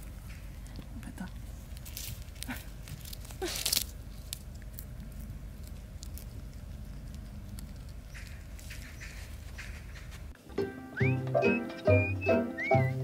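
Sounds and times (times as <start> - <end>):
dog chewing a dry leaf: 0.0 - 10.1
steady low rumble: 0.0 - 10.4.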